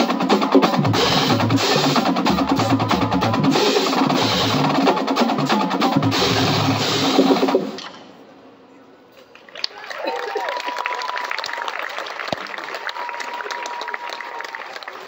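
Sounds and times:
cymbals crashing: 0.0 - 8.2
drumline playing a cadence: 0.0 - 8.2.

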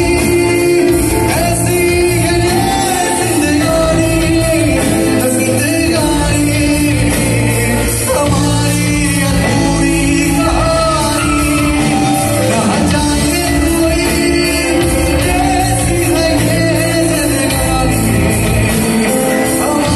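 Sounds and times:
bass: 0.0 - 19.9
person singing: 0.0 - 19.9.

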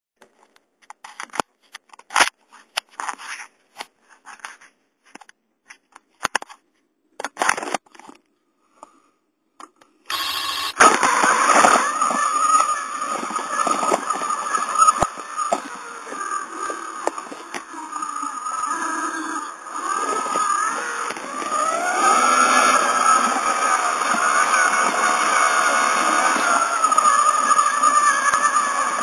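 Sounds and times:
steady whirring with high whine: 10.1 - 29.0.

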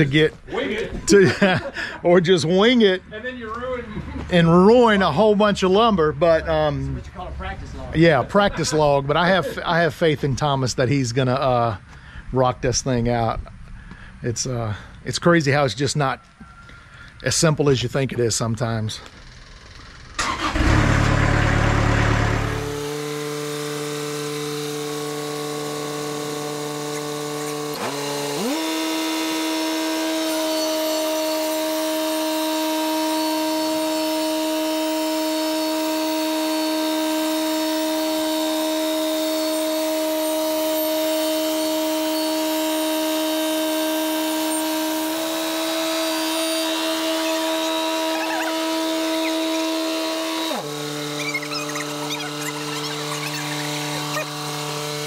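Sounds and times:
sawmill engine starting and revving: 19.1 - 55.0.

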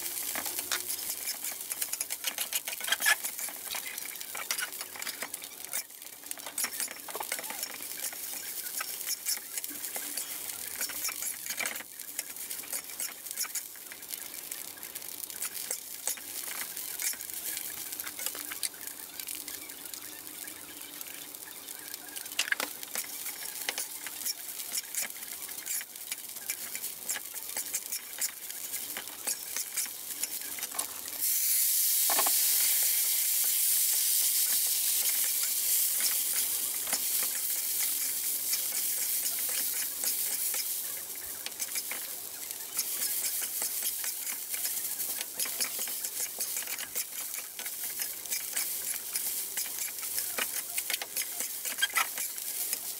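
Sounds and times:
food sizzling in a wok: 0.0 - 52.9
metal spatula scraping a pan: 0.1 - 13.7, 23.0 - 31.2, 33.9 - 52.9.

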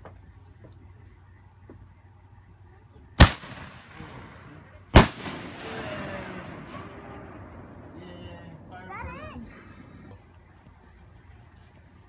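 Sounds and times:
firework bangs with echo: 3.2 - 8.0.

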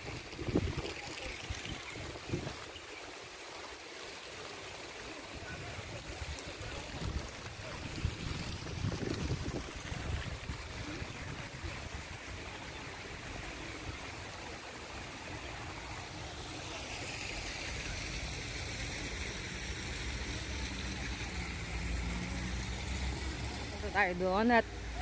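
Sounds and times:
wind rumbling on microphone: 0.0 - 2.8, 5.4 - 12.5
water rushing into a pond: 0.0 - 25.0.

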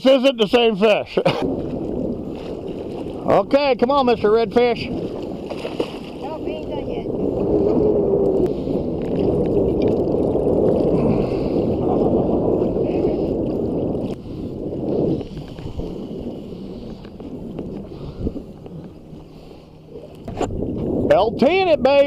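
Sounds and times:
fish thrashing water splashing: 5.0 - 6.3.

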